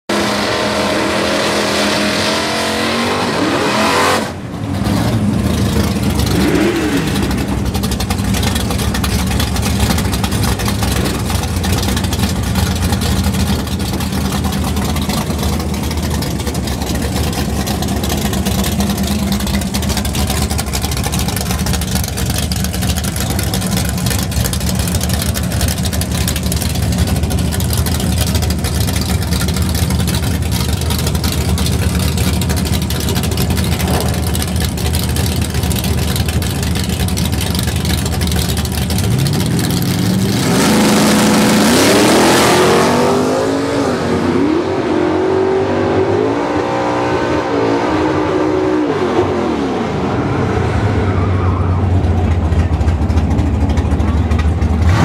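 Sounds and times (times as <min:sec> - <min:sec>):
car engine revving: 0:00.1 - 0:36.8, 0:37.4 - 0:55.0
deep engine idling rumble: 0:04.4 - 0:40.5, 0:49.9 - 0:55.0.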